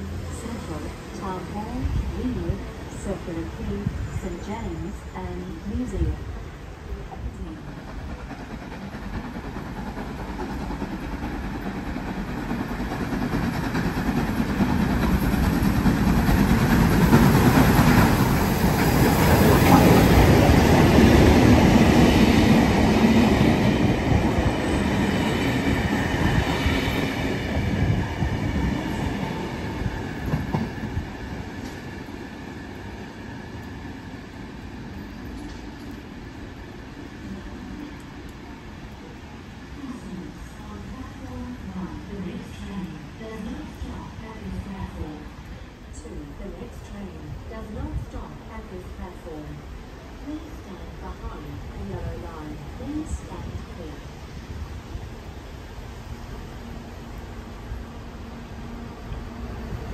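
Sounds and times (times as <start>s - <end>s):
steam train passing: 0.0s - 59.9s.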